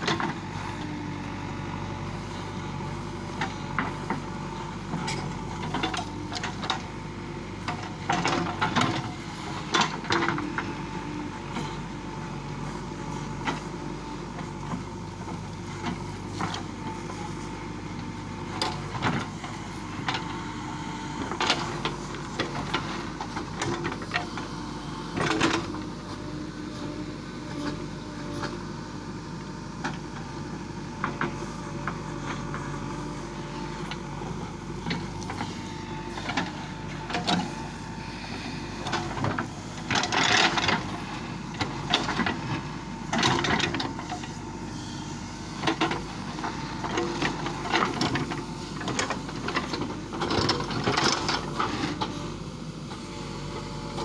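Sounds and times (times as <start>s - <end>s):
diesel engine running: 0.0s - 54.0s
digger bucket clanking: 3.1s - 10.8s, 18.4s - 26.8s, 38.5s - 44.6s, 45.5s - 52.3s.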